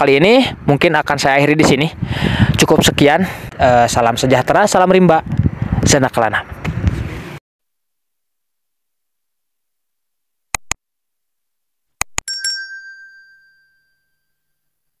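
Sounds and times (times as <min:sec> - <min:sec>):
mouse clicks: 0:10.6 - 0:10.8, 0:12.0 - 0:12.2
bell ding: 0:12.3 - 0:14.9.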